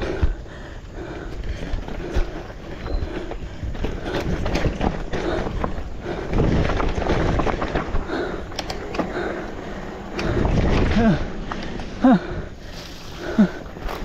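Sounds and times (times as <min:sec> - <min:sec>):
tyres running over dirt: 0:00.0 - 0:14.0
bike knocks and rattles: 0:01.3 - 0:12.0.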